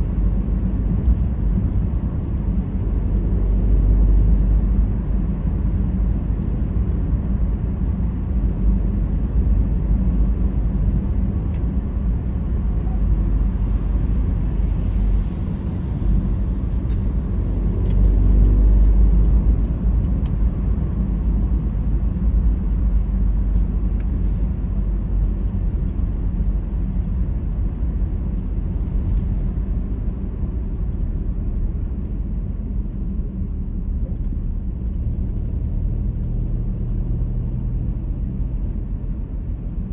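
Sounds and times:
car engine and tyre noise: 0:00.0 - 0:39.9.

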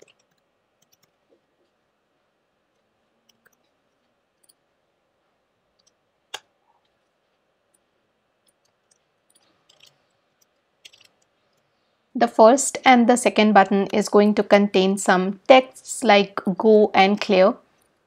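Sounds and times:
computer keys clicking: 0:00.0 - 0:01.3, 0:02.7 - 0:04.7, 0:05.7 - 0:07.1, 0:07.7 - 0:11.7.

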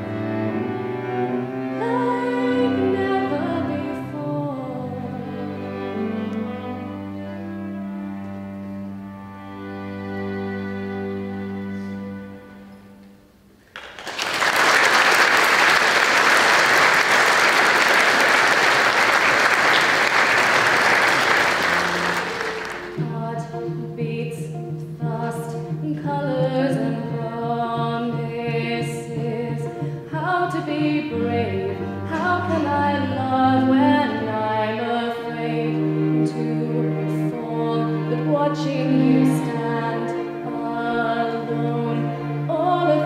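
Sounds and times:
instrumental accompaniment: 0:00.0 - 0:43.0
congregation applauding: 0:13.7 - 0:23.0.

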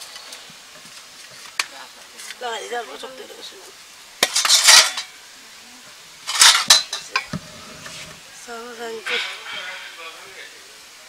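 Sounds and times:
metal lid scraping and clinking: 0:04.2 - 0:05.1, 0:06.3 - 0:08.1.

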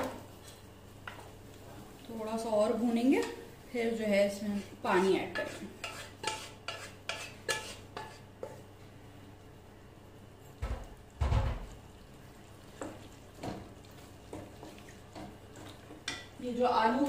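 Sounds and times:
spoon scraping metal cookware: 0:05.3 - 0:08.3.

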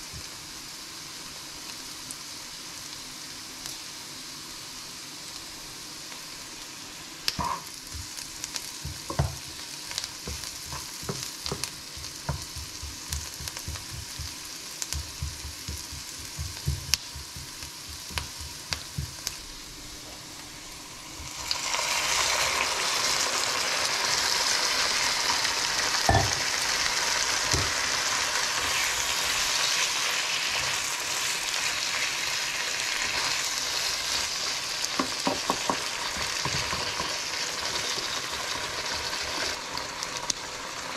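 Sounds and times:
food sizzling in a frying pan: 0:00.0 - 0:40.9
spatula stirring in pan: 0:07.8 - 0:19.4, 0:26.1 - 0:38.1.

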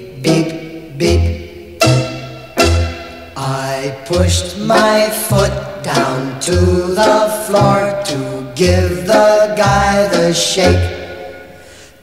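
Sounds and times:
background music with singing: 0:00.0 - 0:12.0
low bass note: 0:00.9 - 0:07.0.

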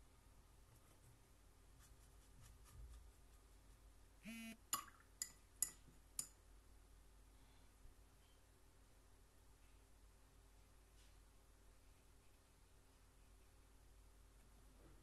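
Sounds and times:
brief buzz: 0:04.2 - 0:04.6.

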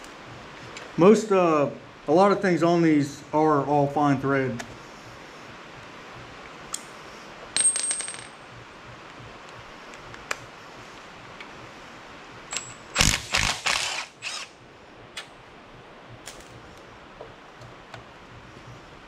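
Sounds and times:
steel part clinking on concrete: 0:07.6 - 0:08.4, 0:12.5 - 0:12.8.

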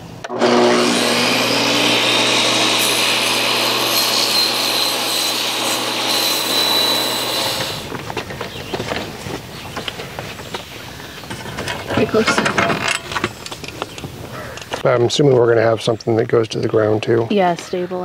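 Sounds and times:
table saw cutting wood: 0:00.2 - 0:07.9.

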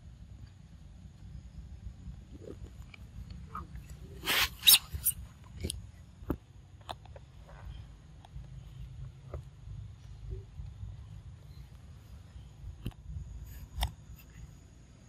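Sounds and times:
monkey squeaks: 0:03.5 - 0:05.2.

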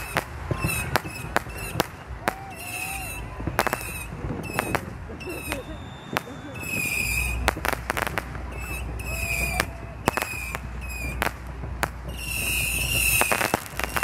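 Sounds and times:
high steady whistling tone: 0:00.0 - 0:07.6, 0:08.3 - 0:11.3, 0:12.0 - 0:14.0
distant fireworks bangs and crackles: 0:00.0 - 0:14.0.

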